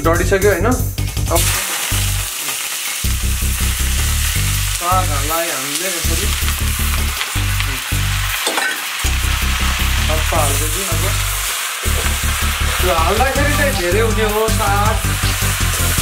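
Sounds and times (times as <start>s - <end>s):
food sizzling in hot oil: 1.0s - 16.0s
music with pulsing bass: 9.1s - 10.4s, 11.1s - 16.0s.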